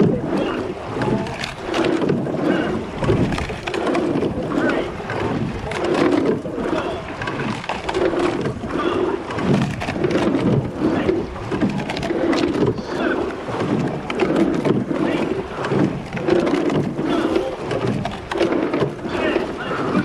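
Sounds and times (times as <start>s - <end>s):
water rushing: 0.0s - 20.0s
wind: 0.0s - 20.0s.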